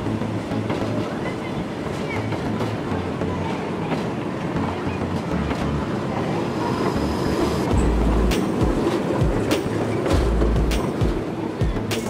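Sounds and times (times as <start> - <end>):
kiddie train wheels rattling: 7.6 - 12.0.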